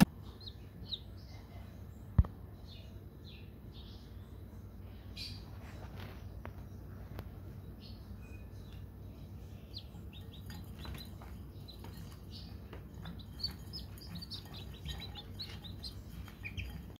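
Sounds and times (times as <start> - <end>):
chicks peeping: 0.1 - 1.5, 5.2 - 17.0.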